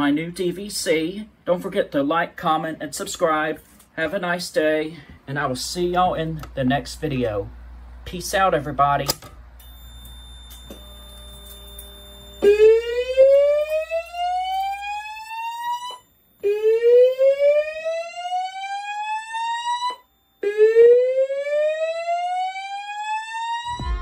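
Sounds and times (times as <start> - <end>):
fire alarm whoop tone: 9.6 - 24.0.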